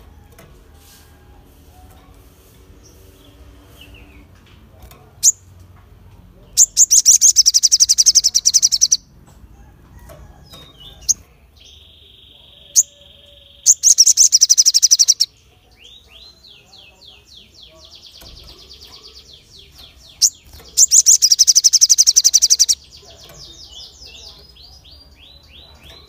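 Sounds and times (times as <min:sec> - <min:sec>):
bird sharp chirps: 0:06.6 - 0:09.1, 0:10.8 - 0:15.3, 0:18.0 - 0:26.0.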